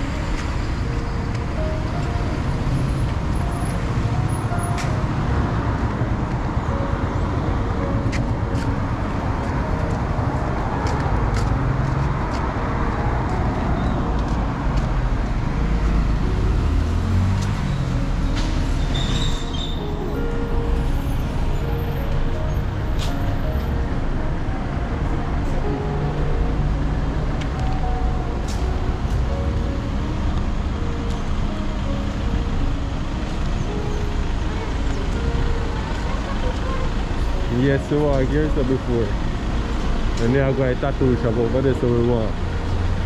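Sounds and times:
passing cars and buses rumbling: 0:00.0 - 0:43.0
vehicle engine passing by: 0:08.9 - 0:19.8.

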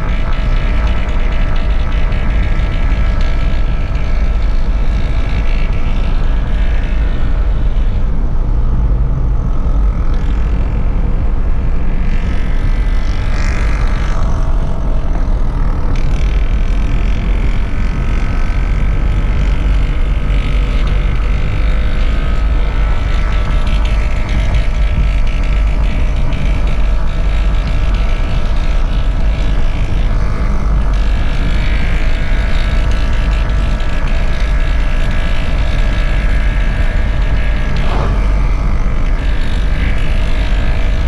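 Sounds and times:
faint droning whine: 0:00.0 - 0:41.0
car interior road and engine rumble: 0:32.9 - 0:41.0.

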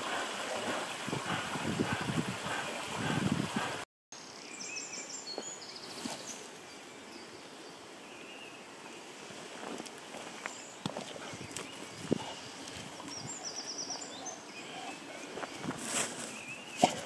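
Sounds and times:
running water: 0:00.0 - 0:03.8
outdoor ambience: 0:00.0 - 0:17.0.

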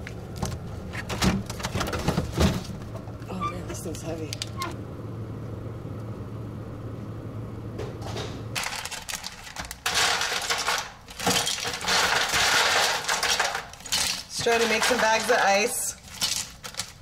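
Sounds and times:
low steady hum: 0:00.0 - 0:17.0
ice cubes clattering into bag: 0:08.6 - 0:17.0.

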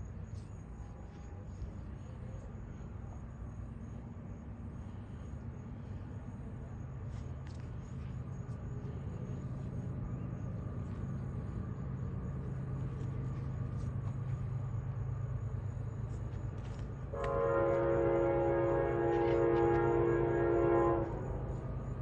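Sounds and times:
low steady rumble: 0:00.0 - 0:22.0
locomotive horn blast: 0:17.1 - 0:21.8.

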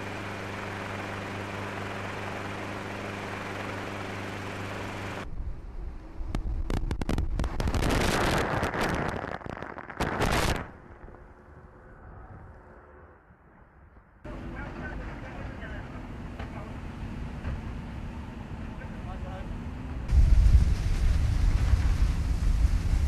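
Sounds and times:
engine drone: 0:00.0 - 0:23.0
low rumble: 0:05.2 - 0:15.9, 0:20.0 - 0:23.0
water spray and wind rushing: 0:20.1 - 0:23.0.

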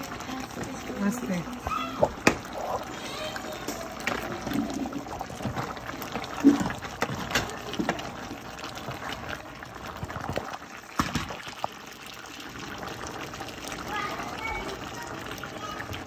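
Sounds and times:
liquid bubbling in pot: 0:00.0 - 0:16.0.

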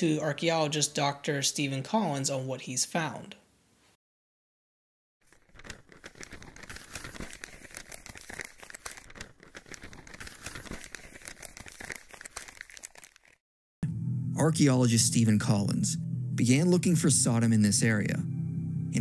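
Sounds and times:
paper crinkling and rustling: 0:05.2 - 0:13.4.

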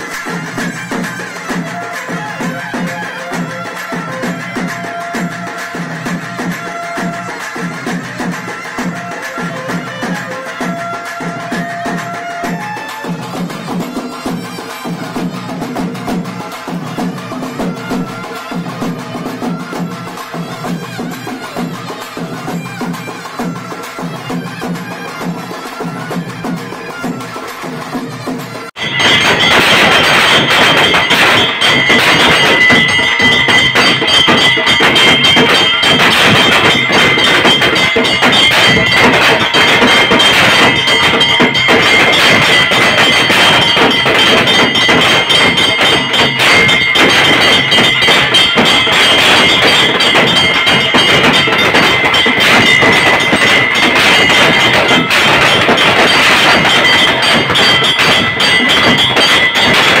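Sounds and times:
rapid drumming: 0:00.0 - 1:00.0
high held tone: 0:28.8 - 1:00.0.

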